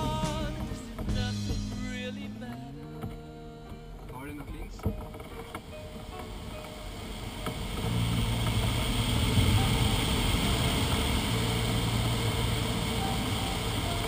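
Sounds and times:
airflow rushing over glider canopy: 5.8s - 14.0s.

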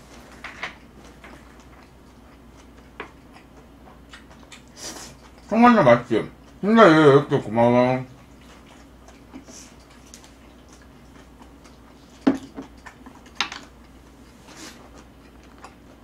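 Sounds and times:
wet mouth eating noises: 0.8s - 5.6s, 8.2s - 16.0s.

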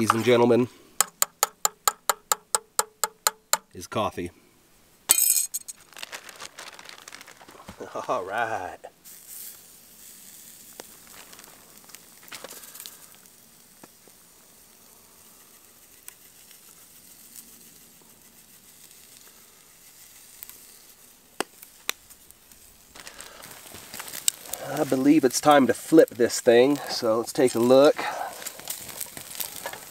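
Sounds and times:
steak sizzling on grill: 8.3s - 29.9s.

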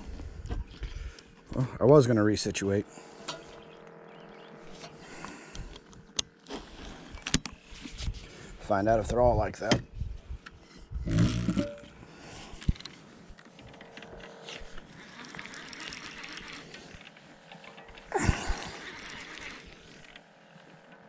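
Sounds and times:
faint rustling and ticks: 11.9s - 21.0s
fishing reel click: 14.6s - 17.6s, 18.6s - 20.3s.

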